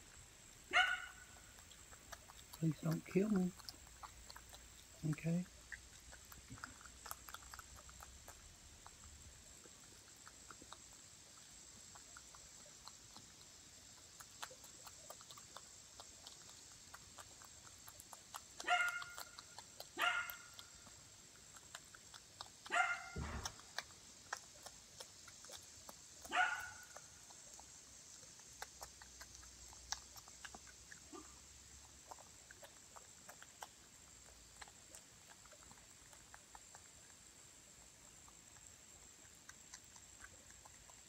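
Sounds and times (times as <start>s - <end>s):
groundhog chewing: 0.0s - 41.0s
dog barking: 0.7s - 1.3s, 18.6s - 19.4s, 20.0s - 20.6s, 22.6s - 23.5s, 26.2s - 27.0s, 31.1s - 31.4s.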